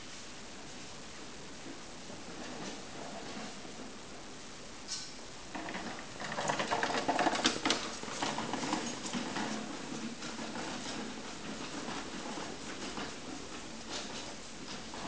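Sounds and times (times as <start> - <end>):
trolley wheels rattling on hard floor: 1.6 - 4.0, 5.5 - 15.0.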